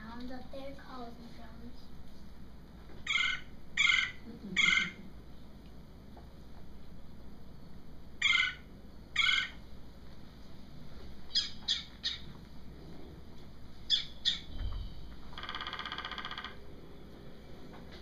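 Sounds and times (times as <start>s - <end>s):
woodpecker calls over speakers: 3.0s - 5.0s, 8.2s - 9.6s, 11.3s - 12.3s, 13.9s - 14.5s, 15.4s - 16.6s.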